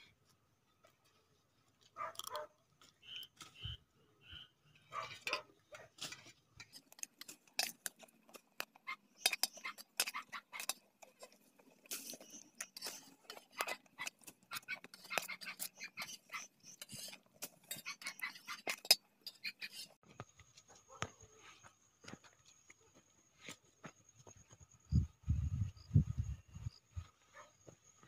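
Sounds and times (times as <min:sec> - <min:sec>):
metal spoon scraping a plate: 0:06.0 - 0:20.0.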